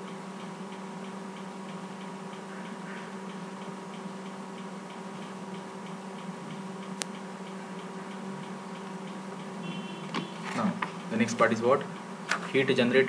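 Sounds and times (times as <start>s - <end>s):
faint ticking: 0.0s - 13.0s
sharp click: 7.0s - 7.2s.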